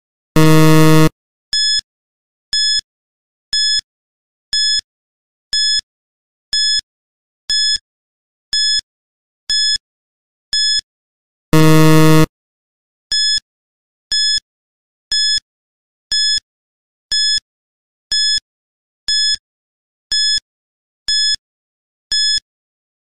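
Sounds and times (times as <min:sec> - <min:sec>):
electronic tick-beeps: 0:00.4 - 0:01.1, 0:11.6 - 0:12.3
low buzzer: 0:00.4 - 0:01.1, 0:11.6 - 0:12.3.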